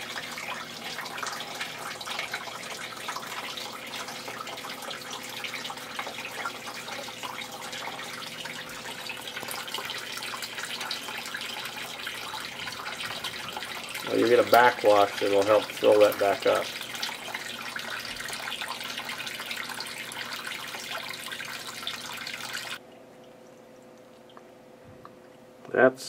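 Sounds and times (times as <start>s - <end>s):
sump pump running: 0.0s - 22.8s
water trickling and splashing: 0.0s - 25.5s.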